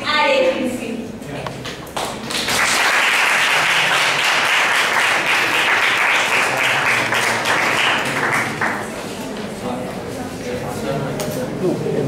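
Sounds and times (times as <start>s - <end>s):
audience applauding: 1.9s - 9.0s.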